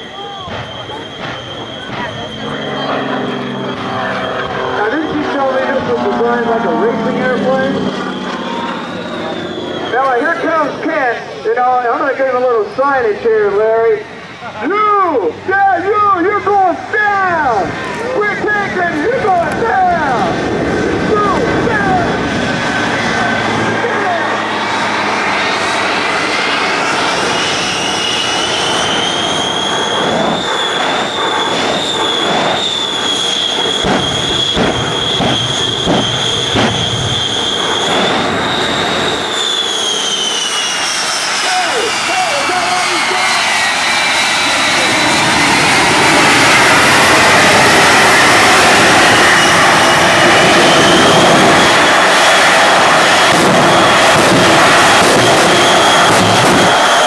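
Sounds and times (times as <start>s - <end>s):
jet engines roaring with high whine: 0.0s - 57.0s
sharp pops: 33.8s - 36.9s.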